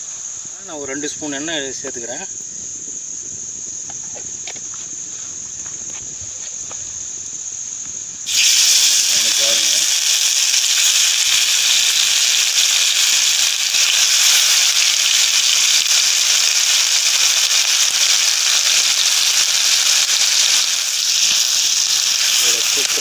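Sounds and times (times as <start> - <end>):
fish sizzling in hot oil: 8.2 - 23.0.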